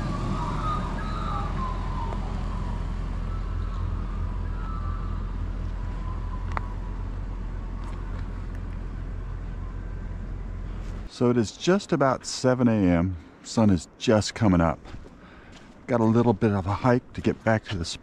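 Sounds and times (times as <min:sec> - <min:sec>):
faint wavering tones: 0:00.0 - 0:11.1
car engine idling: 0:00.0 - 0:11.3.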